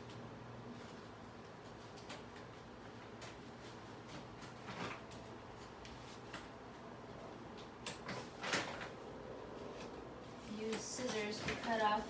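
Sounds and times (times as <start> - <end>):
plastic wrapping rustling: 9.6 - 12.0.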